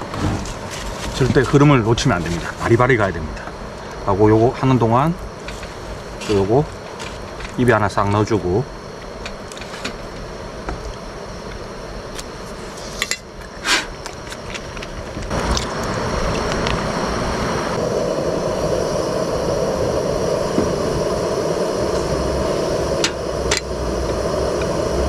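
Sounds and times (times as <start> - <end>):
gas burner running: 0.0 - 25.0.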